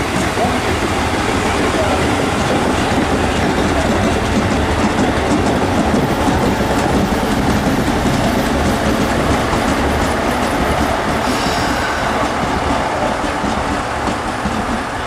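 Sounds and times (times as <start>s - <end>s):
train wheels rushing on rails: 0.0s - 15.0s.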